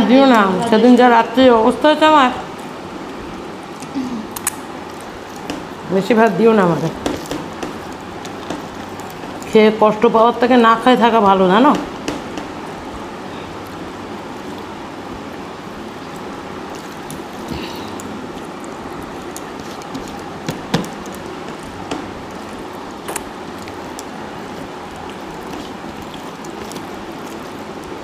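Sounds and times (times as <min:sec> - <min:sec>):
chewing: 0:03.7 - 0:05.7, 0:06.9 - 0:09.5, 0:15.6 - 0:28.0
rice mixed and scooped on plates: 0:15.7 - 0:28.0.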